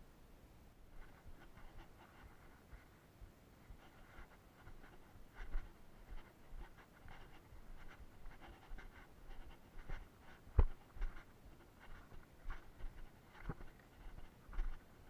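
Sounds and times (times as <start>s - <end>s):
footsteps crunching on dirt and stones: 9.8s - 14.9s.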